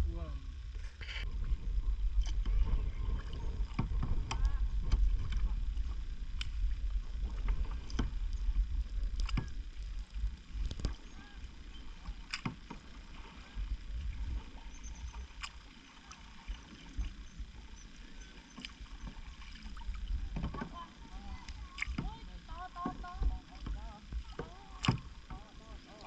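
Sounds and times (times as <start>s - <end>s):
steady low rumble: 0.0s - 26.0s
paddle splashes and knocks: 1.3s - 9.7s, 11.8s - 17.2s, 18.5s - 26.0s
paddles dipping into water: 1.3s - 26.0s.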